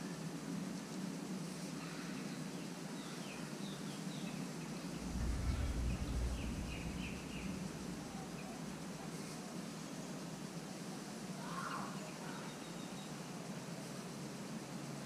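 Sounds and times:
outdoor background hum: 0.0s - 15.0s
low rumble: 4.9s - 9.4s.

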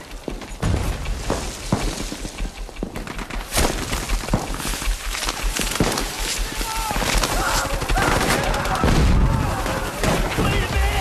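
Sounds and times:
steady low rumble: 0.0s - 8.0s
gunshots and bullet cracks: 0.0s - 11.0s.

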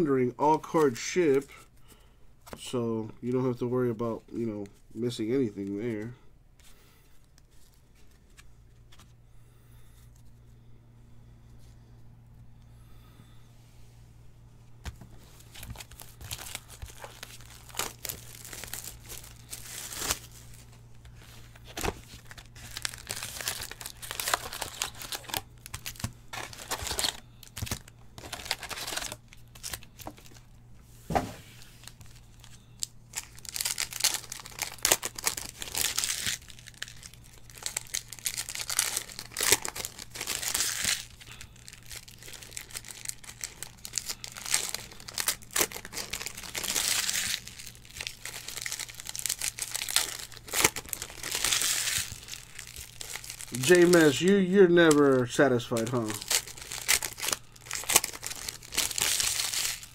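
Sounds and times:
cards being handled: 4.6s - 9.2s, 14.8s - 30.4s
foil wrappers tearing and crinkling: 15.3s - 30.4s, 31.8s - 59.9s.

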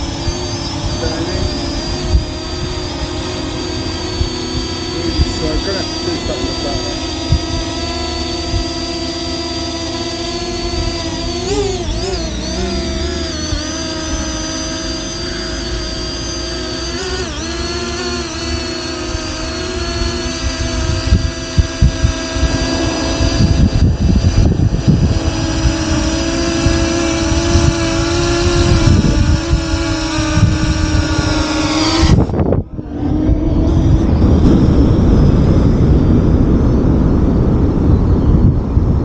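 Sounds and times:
quadcopter propellers whining: 0.0s - 39.0s
wind rumble on microphone: 0.0s - 39.0s.

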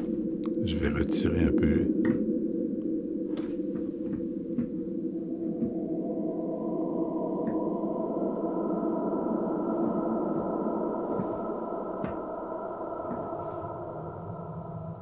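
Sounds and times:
dark vocal drone: 0.0s - 15.0s.

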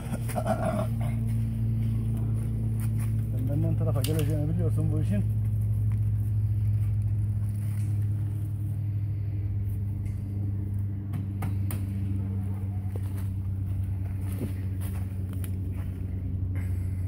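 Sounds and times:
machine humming: 0.0s - 17.0s.

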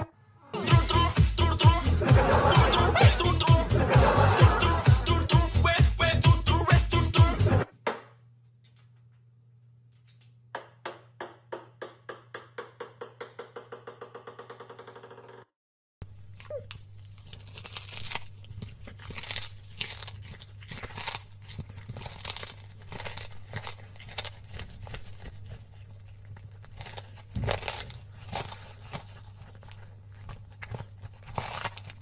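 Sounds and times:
cat chewing fish: 16.1s - 32.0s.

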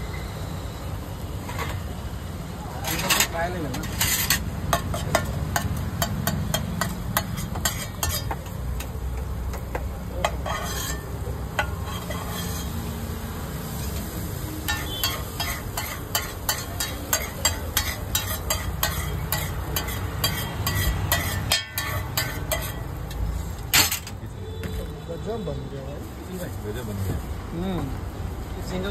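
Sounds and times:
sizzling: 0.0s - 24.3s
metal spatula scraping a pan: 2.8s - 8.9s, 10.2s - 24.2s.

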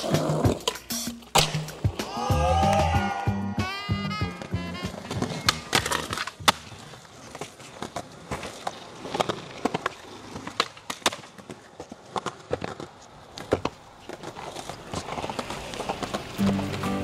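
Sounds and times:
music: 0.0s - 6.2s, 16.4s - 17.0s
skateboard wheels rolling on concrete: 0.0s - 17.0s
skateboard clacks and pops: 4.4s - 17.0s.

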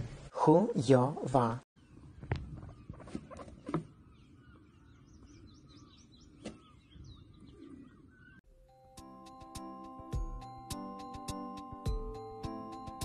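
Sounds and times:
faint bird chirps: 1.8s - 8.4s.

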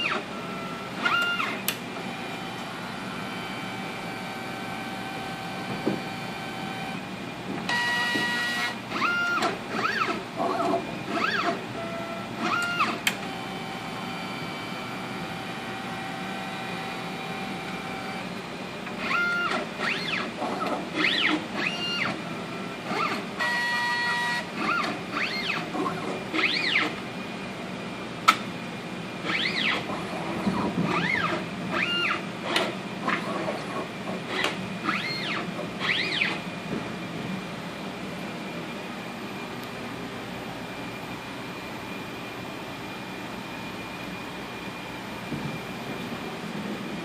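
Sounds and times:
stepper motor whines: 0.0s - 7.1s, 7.7s - 27.0s, 29.2s - 33.2s, 34.3s - 36.5s.

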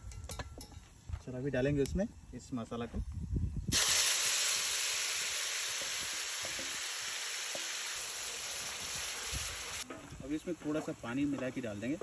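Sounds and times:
paste sizzling in hot oil: 3.7s - 12.0s.

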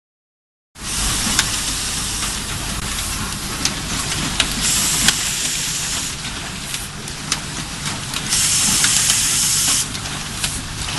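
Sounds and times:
low rumble: 0.8s - 5.1s
machine hissing: 4.6s - 6.2s, 8.3s - 10.0s.

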